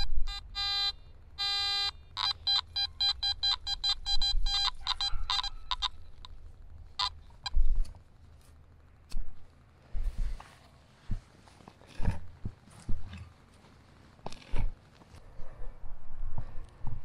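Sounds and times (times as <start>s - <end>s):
metal detector tone and beeps: 0.0s - 6.0s.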